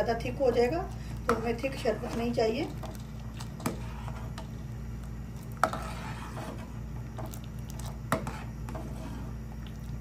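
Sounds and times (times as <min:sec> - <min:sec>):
steady low hum: 0:00.0 - 0:10.0
ladle stirring in pan: 0:00.4 - 0:10.0.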